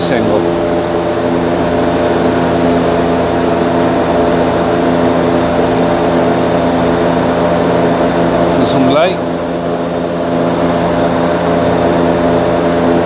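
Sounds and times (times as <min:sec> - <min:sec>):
machine humming: 0:00.0 - 0:13.0.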